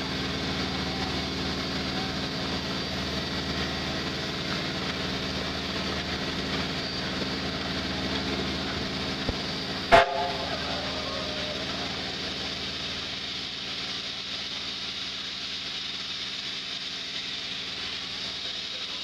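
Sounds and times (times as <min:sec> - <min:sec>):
steam hissing: 0:00.0 - 0:19.0.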